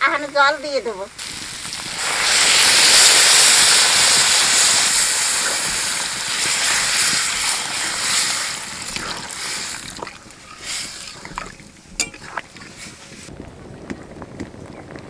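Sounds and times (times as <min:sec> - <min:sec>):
hot pan hissing: 0:01.1 - 0:12.4
water pouring into hot pan: 0:01.2 - 0:12.8.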